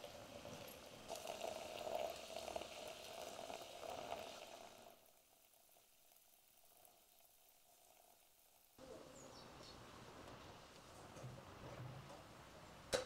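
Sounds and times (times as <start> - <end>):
hot water pouring into teapot: 0.0 - 8.7.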